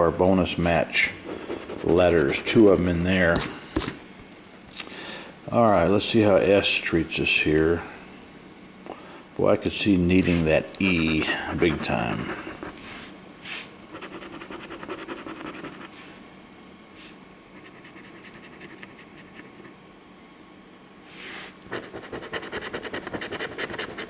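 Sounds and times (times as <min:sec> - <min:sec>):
coin scratching a ticket: 0:01.2 - 0:03.9, 0:10.3 - 0:12.8, 0:13.9 - 0:16.0, 0:17.6 - 0:19.6, 0:21.7 - 0:24.0.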